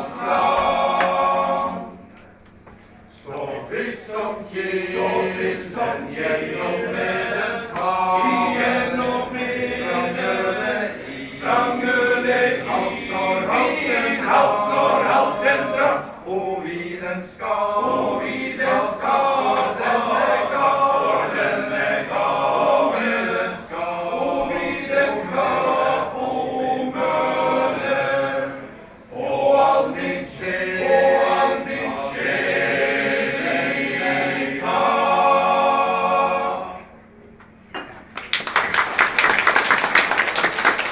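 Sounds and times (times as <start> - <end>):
male choir singing a cappella: 0.0 - 2.2, 3.1 - 37.1
audience applause: 38.1 - 40.9.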